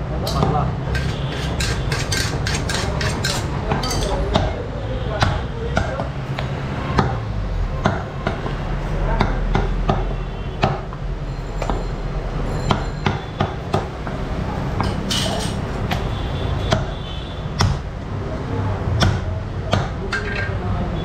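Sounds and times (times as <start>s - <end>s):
cleaver chopping on wooden block: 16.7s - 17.0s, 17.6s - 17.8s, 19.0s - 20.0s.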